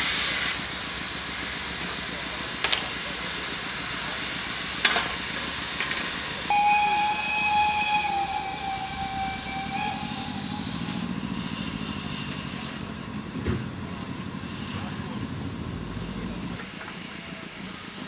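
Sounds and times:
steam hissing: 0.0 - 18.0
steam whistle: 6.5 - 12.4.

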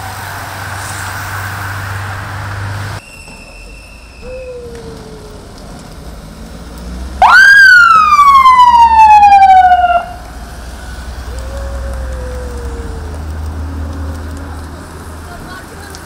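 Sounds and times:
low rumble of vehicles: 0.0 - 16.0
faint low falling siren: 3.6 - 14.7
siren sweeping in pitch: 3.8 - 5.6, 7.2 - 10.2.

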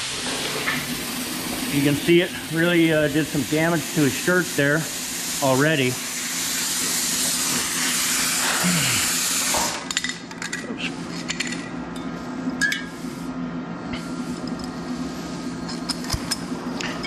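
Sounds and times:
plasma cutter air jet hissing: 0.0 - 9.9
steady low hum: 9.9 - 17.0.

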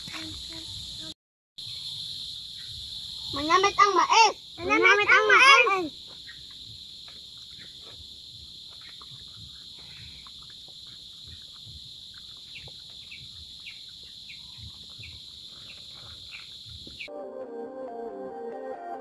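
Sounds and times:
high insect drone: 0.0 - 18.4
bird chirping: 10.8 - 17.1.

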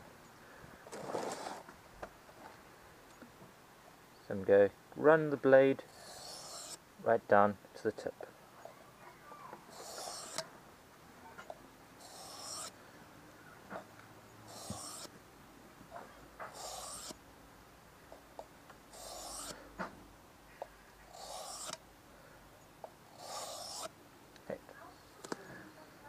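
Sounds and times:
knife scraping on whetstone: 5.9 - 6.8, 9.7 - 10.4, 12.0 - 12.8, 14.5 - 15.1, 16.4 - 17.2, 18.9 - 19.6, 21.1 - 21.8, 23.1 - 23.9
blade clicking on stone: 9.8 - 10.5, 21.1 - 21.8.

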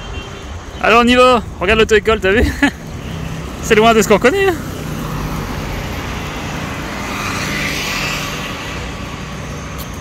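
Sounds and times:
vehicle passing: 2.8 - 10.0.

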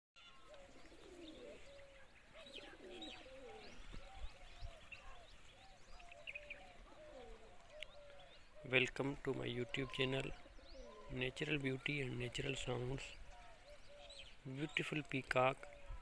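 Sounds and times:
small birds chirping: 0.2 - 16.0
pigeons cooing: 0.4 - 16.0.

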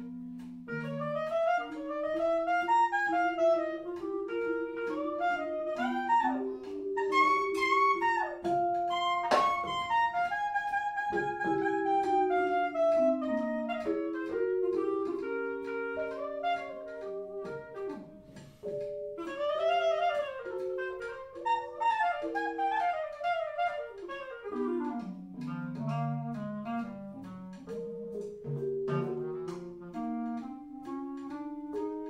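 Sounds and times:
clarinet melody: 0.0 - 32.0
drums keeping time: 24.0 - 31.9
bass: 24.8 - 31.8.

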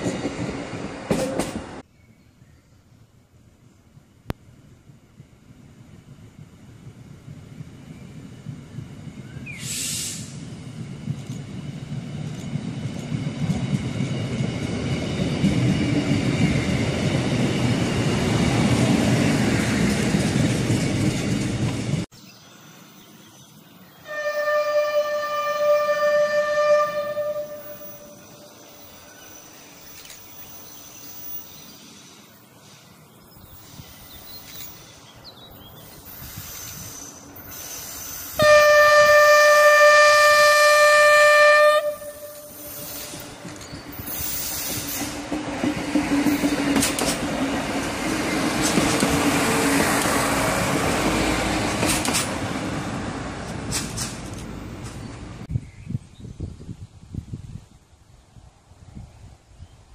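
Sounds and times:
diesel railcar passing: 0.0 - 2.5, 3.4 - 55.5
train horn: 24.0 - 28.5, 38.4 - 43.2.

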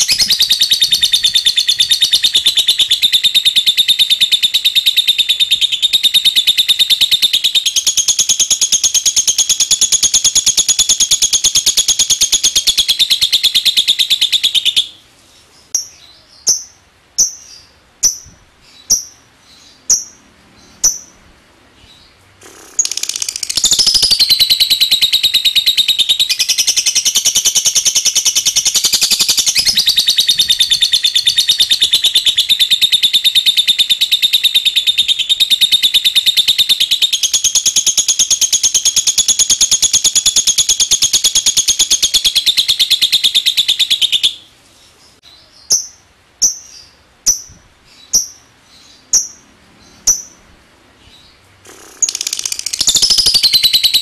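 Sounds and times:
lovebird chattering trill: 0.0 - 15.0, 15.6 - 21.2, 21.8 - 44.5, 45.6 - 50.5, 51.1 - 54.0
lovebird clicking chirps: 18.9 - 19.2, 19.9 - 20.2, 20.8 - 21.1, 22.4 - 32.8, 48.1 - 48.4, 49.1 - 49.4, 50.1 - 50.4, 51.7 - 54.0.

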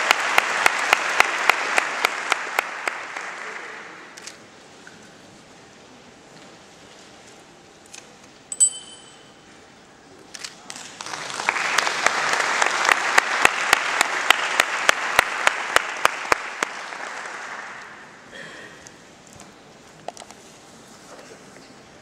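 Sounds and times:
nearby hands clapping: 0.0 - 3.9, 10.7 - 18.0
audience applause: 0.0 - 4.1, 10.8 - 18.2
ringing clink: 8.5 - 9.4.

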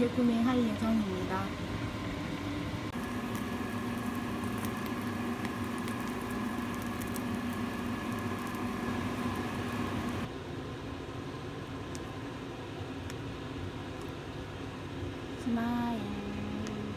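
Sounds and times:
egg sizzling in a frying pan: 2.9 - 10.3.

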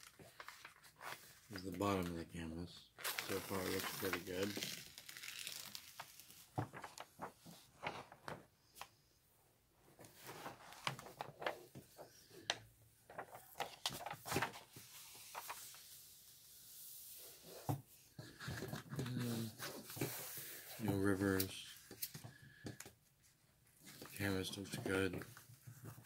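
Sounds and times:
plastic sheet rustling and crackling: 3.0 - 8.5, 10.1 - 12.3, 13.1 - 15.8.

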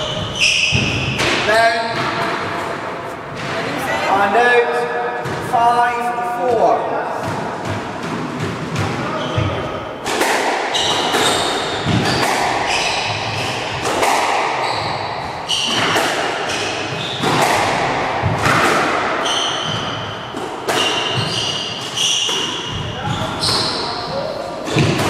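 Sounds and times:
shoes squeaking on wooden floor: 0.0 - 1.6, 9.0 - 9.7, 10.7 - 13.9, 14.5 - 17.6, 20.7 - 25.0
squash ball hitting rackets and walls: 0.0 - 3.8, 4.7 - 25.0.

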